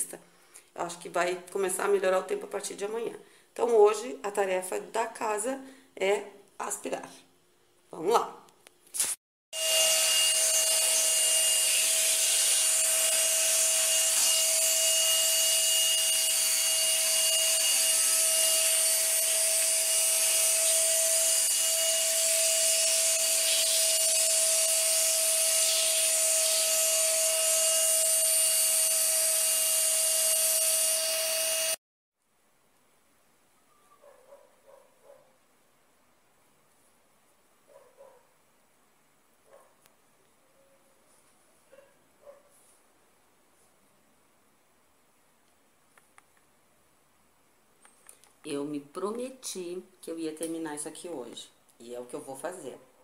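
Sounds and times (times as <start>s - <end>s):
vacuum cleaner running: 9.6s - 31.8s.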